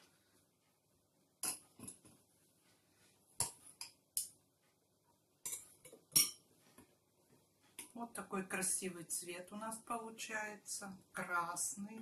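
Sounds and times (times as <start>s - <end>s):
spoons clinking on porcelain bowl: 5.5s - 6.4s.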